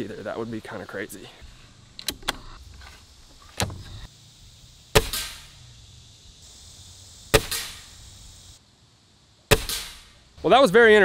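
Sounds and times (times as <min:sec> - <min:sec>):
air rifle shots: 0:04.9 - 0:05.6, 0:07.3 - 0:08.0, 0:09.5 - 0:10.2.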